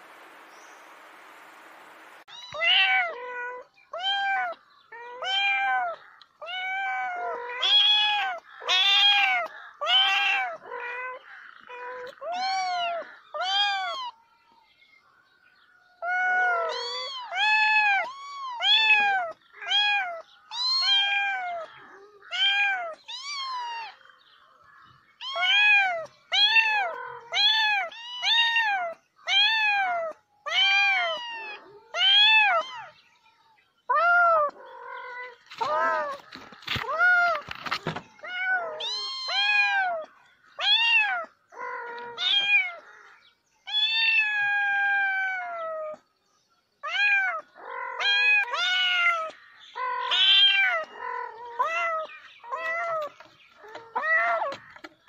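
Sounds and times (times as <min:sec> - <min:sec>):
cat meowing: 0:02.3 - 0:14.2, 0:16.0 - 0:24.0, 0:25.2 - 0:33.0, 0:38.2 - 0:42.8, 0:43.7 - 0:45.9, 0:46.8 - 0:54.9.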